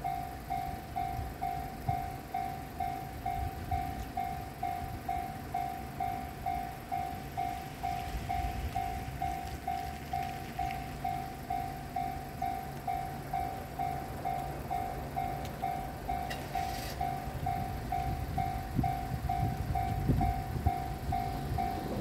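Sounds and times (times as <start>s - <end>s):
level crossing alarm ringing: 0.0s - 22.0s
low rumbling noise: 17.0s - 22.0s.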